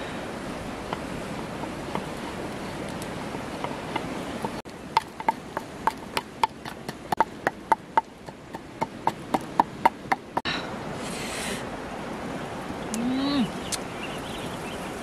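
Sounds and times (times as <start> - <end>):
wooden pestle knocking in mortar: 3.6 - 10.4.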